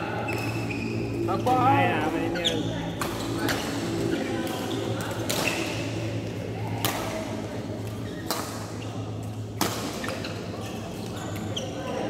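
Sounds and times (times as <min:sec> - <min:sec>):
low hum in hall: 0:00.0 - 0:12.0
rackets striking shuttlecock: 0:02.9 - 0:03.8, 0:04.4 - 0:05.9, 0:06.8 - 0:07.2, 0:07.8 - 0:10.4.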